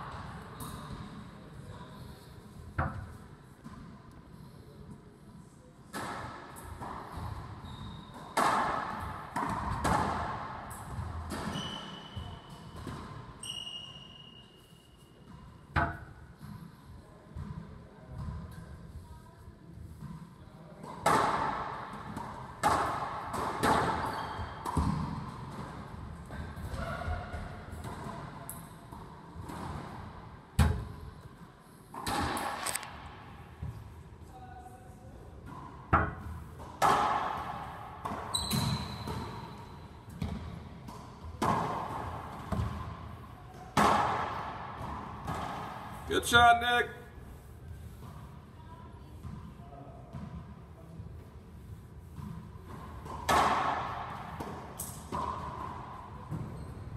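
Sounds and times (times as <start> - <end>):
ball smacking court with echo: 5.9 - 13.8, 15.2 - 16.7, 19.9 - 31.1, 31.9 - 34.0, 35.4 - 46.9, 49.2 - 51.0, 52.0 - 56.9
sneakers squeaking on hardwood: 11.3 - 12.8, 23.9 - 25.0, 38.1 - 39.6
racquetball hits ringing: 43.7 - 45.9.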